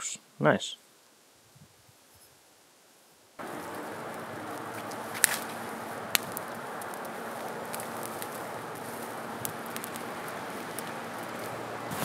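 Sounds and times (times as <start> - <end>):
campfire burning and crackling: 0.8 - 12.0
sharp pops of fire: 3.4 - 12.0.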